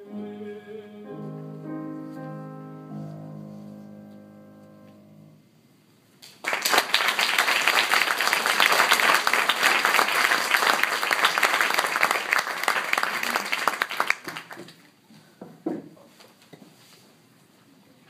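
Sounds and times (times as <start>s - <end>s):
audience applauding: 6.2s - 14.8s.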